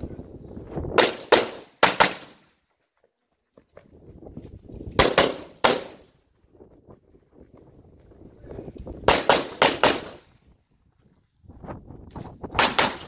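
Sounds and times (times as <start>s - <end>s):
pistol shots with echo: 1.0s - 2.4s, 5.0s - 6.1s, 9.1s - 10.3s, 12.6s - 13.0s.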